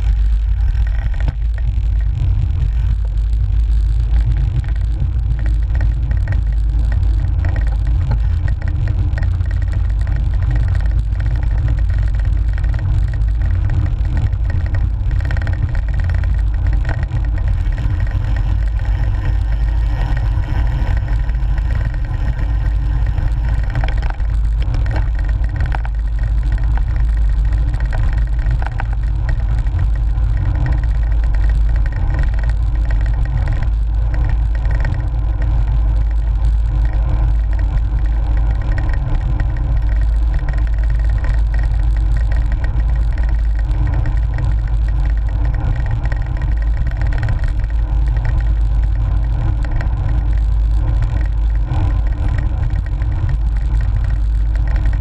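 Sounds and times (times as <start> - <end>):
bike road vibration: 0.0 - 55.0
wind buffeting microphone: 0.0 - 55.0.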